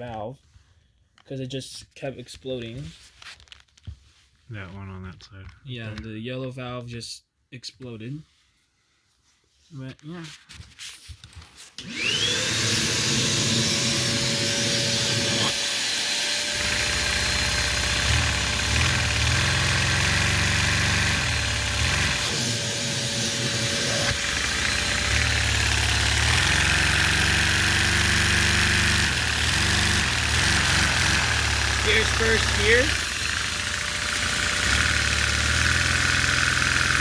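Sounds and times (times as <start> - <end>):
vacuum whine and hiss: 11.8 - 15.8, 30.8 - 33.3
toy piston engine chugging: 24.1 - 37.0.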